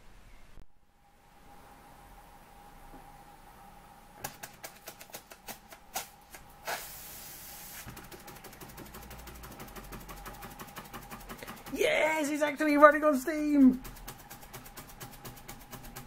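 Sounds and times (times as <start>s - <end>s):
steam hiss: 6.6s - 7.9s.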